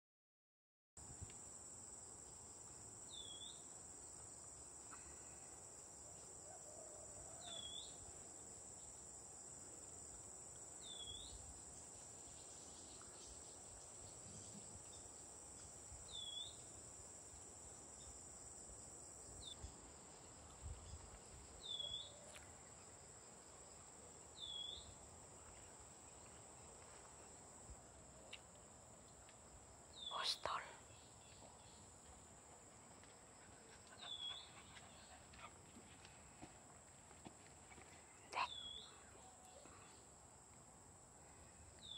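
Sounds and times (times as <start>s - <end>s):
insects droning: 1.0s - 41.9s
bird chirp: 10.8s - 11.4s, 21.6s - 22.3s, 30.0s - 31.9s, 34.0s - 35.1s, 38.1s - 40.0s.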